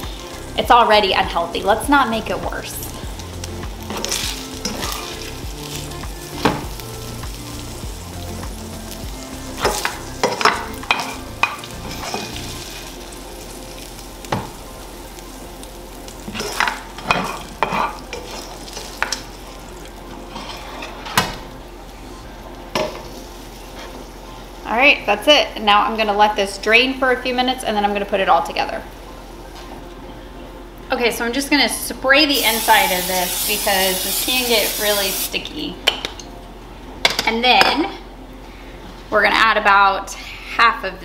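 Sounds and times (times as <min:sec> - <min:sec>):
sausage sizzling in skillet: 0:00.0 - 0:21.0, 0:32.3 - 0:35.5.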